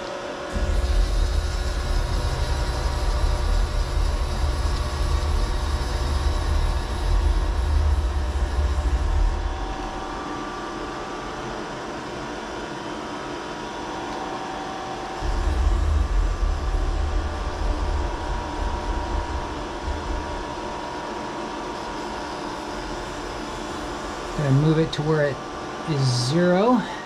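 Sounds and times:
milling machine humming: 0.0 - 27.0
heavy low rumble: 0.5 - 10.5, 15.2 - 24.7.

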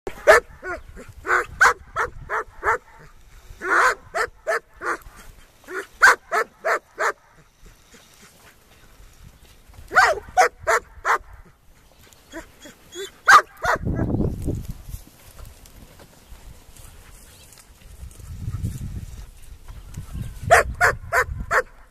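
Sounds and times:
puppies barking: 0.1 - 3.0, 3.6 - 5.0, 5.7 - 7.4, 9.9 - 11.4, 12.3 - 14.0.

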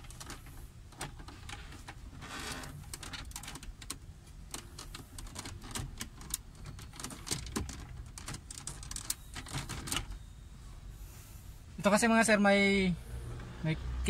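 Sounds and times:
plastic panel clicking and ticking: 2.8 - 10.2.

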